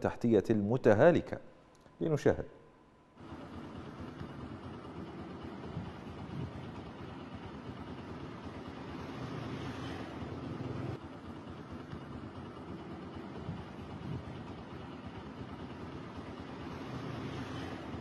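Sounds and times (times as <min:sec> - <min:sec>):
low mechanical rumble: 0:03.0 - 0:16.8.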